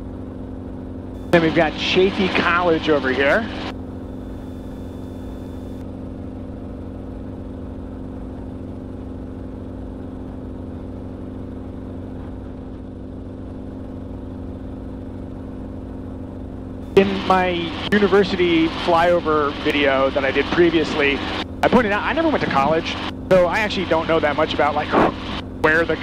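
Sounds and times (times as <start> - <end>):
helicopter engine and rotor drone: 0.0 - 26.0.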